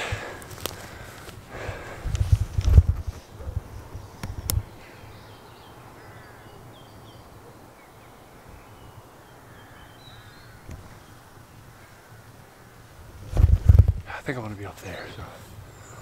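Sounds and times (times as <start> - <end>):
small birds chirping: 3.0 - 16.0
jackdaws calling: 4.0 - 13.1, 14.1 - 16.0.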